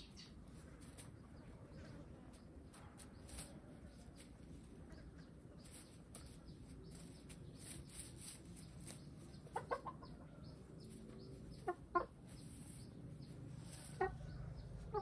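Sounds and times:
rustling and pecking in straw: 0:00.2 - 0:15.0
hens clucking: 0:04.1 - 0:15.0.

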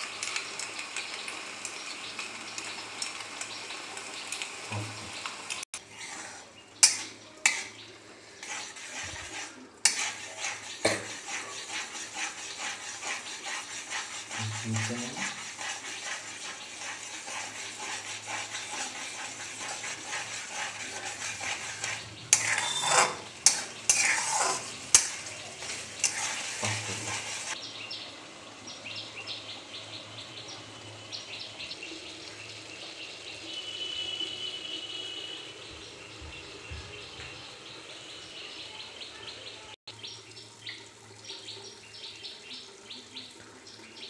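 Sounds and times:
spatula clinking and scraping pan: 0:00.0 - 0:04.1, 0:05.5 - 0:27.6
onions sizzling in oil: 0:00.0 - 0:38.6.

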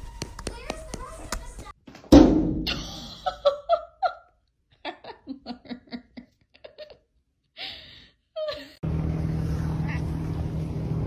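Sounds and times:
person laughing in bursts: 0:02.7 - 0:07.1.

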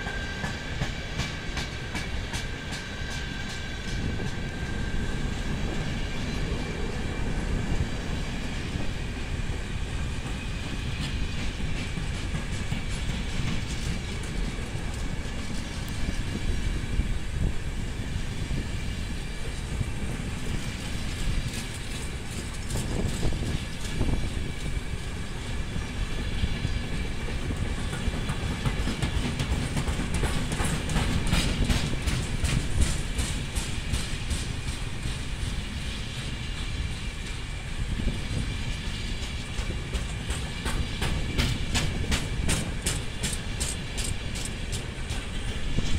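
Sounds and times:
train wheels rumbling on rail: 0:00.0 - 0:45.9
wheels clicking over rail joints: 0:26.6 - 0:35.6, 0:39.1 - 0:45.9.

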